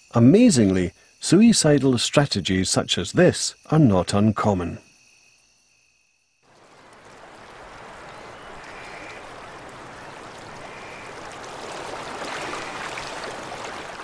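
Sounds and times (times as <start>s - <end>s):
river water rushing: 6.6s - 14.0s.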